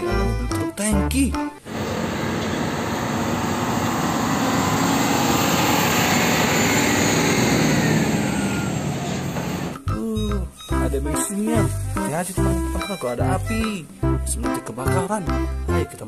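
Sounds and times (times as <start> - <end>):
trucks driving past: 1.6 - 9.8.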